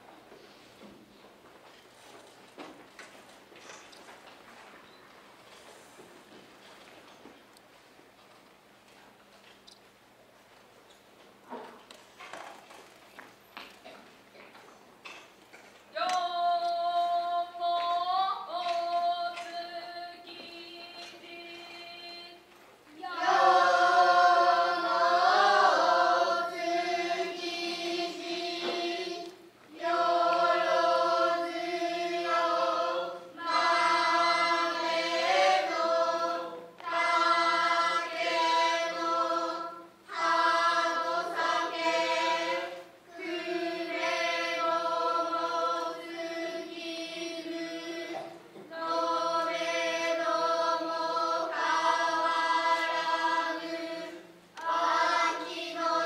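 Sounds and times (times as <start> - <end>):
children's chorus chanting in unison: 23.0 - 56.0.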